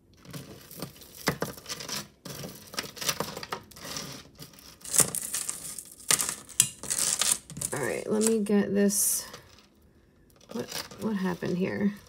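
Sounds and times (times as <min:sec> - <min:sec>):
rustling: 0:00.0 - 0:08.5.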